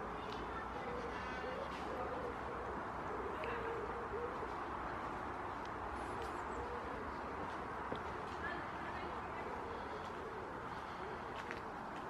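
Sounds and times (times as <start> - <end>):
road traffic hum: 0.0 - 12.0
bird cooing: 0.8 - 5.3, 6.1 - 7.4.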